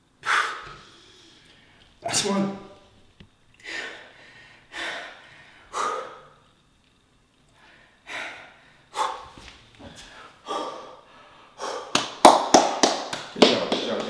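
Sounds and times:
person panting heavily: 0:03.6 - 0:06.4, 0:07.6 - 0:12.0.

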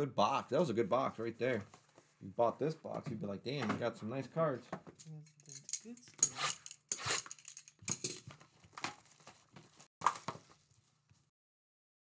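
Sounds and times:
plastic wrap crinkling: 0:08.2 - 0:11.2.

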